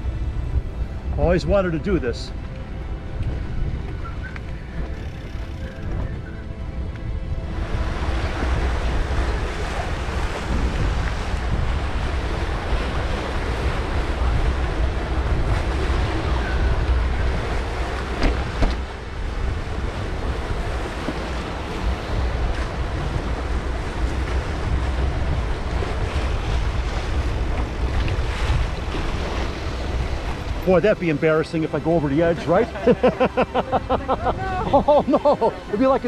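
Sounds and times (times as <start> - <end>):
wind buffeting microphone: 0.0 - 36.0
waves splashing against seawall: 7.6 - 36.0
sharp knocks: 18.2 - 18.9.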